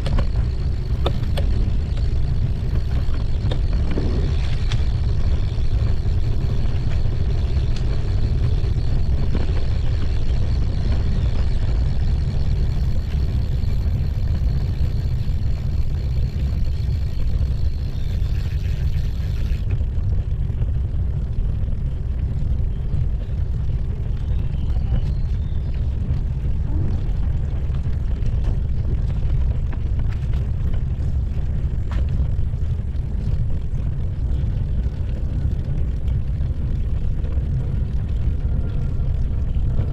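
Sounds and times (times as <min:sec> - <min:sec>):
tyres rolling on brick paving: 0:00.0 - 0:39.9
wind buffeting microphone: 0:00.0 - 0:39.9.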